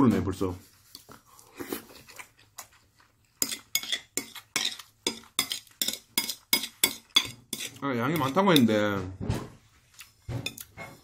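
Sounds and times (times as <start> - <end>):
fork clinking on ceramic dish: 3.4 - 8.7.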